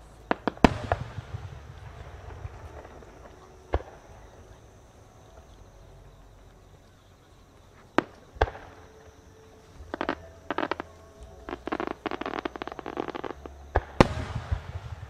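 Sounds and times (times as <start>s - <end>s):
fireworks sharp bangs: 0.0s - 5.5s, 8.0s - 15.0s
fireworks crackling pops: 0.0s - 15.0s.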